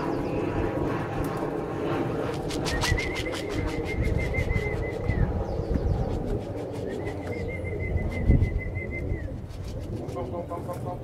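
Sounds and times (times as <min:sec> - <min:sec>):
pigeons cooing: 0:02.4 - 0:11.0
high wavering whistle: 0:02.6 - 0:05.4, 0:06.8 - 0:09.4.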